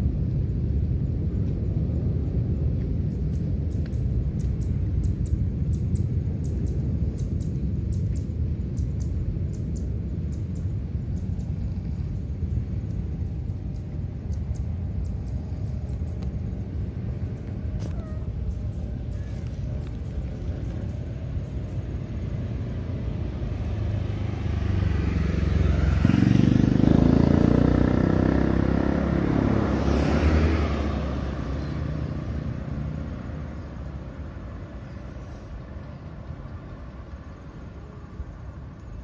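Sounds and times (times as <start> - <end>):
vehicle engine passing by: 16.7 - 38.6.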